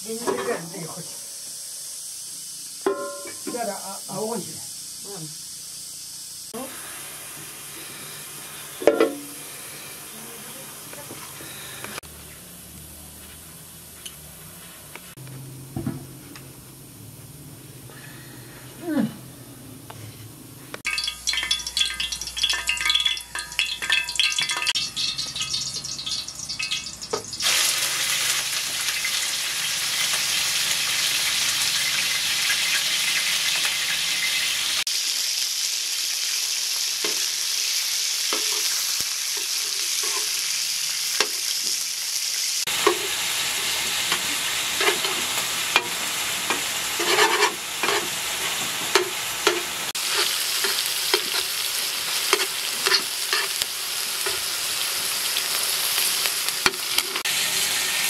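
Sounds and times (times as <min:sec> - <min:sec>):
meat sizzling in a pan: 0:00.0 - 0:12.0, 0:20.8 - 0:58.0
metal spatula scraping and tapping: 0:39.4 - 0:40.4, 0:44.1 - 0:51.5, 0:52.3 - 0:53.6, 0:54.2 - 0:54.5.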